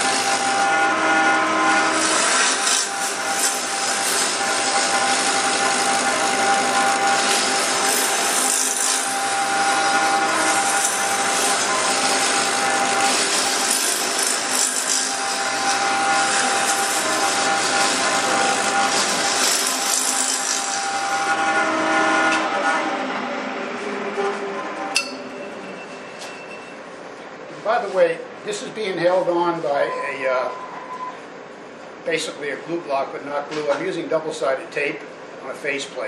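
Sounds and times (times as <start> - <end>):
lathe tool cutting wood: 0.0 - 24.9.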